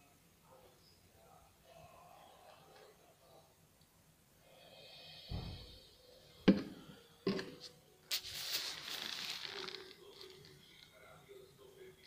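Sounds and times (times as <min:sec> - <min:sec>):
can thudding and knocking: 0:06.5 - 0:07.6
rustling or scraping: 0:07.6 - 0:10.6.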